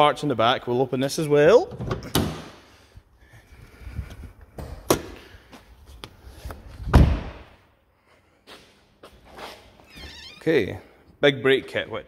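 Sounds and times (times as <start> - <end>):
heavy thump: 6.9 - 7.5.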